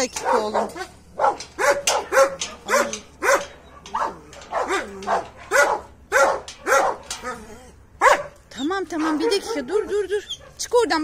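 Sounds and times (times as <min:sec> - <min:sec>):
dogs barking rapidly: 0:00.1 - 0:10.8.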